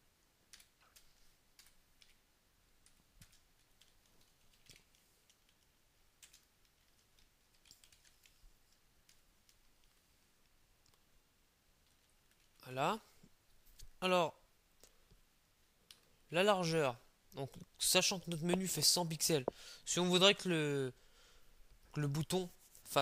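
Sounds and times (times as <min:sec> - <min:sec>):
computer keyboard typing: 0:00.5 - 0:02.2, 0:02.8 - 0:08.4.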